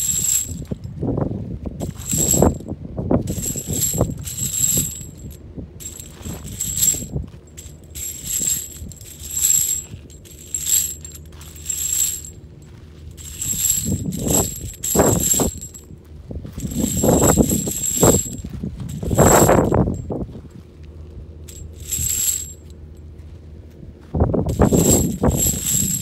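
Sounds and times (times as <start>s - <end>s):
metal casings rattling in wire cage: 0.0s - 0.9s, 1.8s - 2.6s, 3.3s - 12.4s, 13.1s - 15.9s, 16.6s - 20.1s, 21.5s - 22.7s, 24.5s - 26.0s.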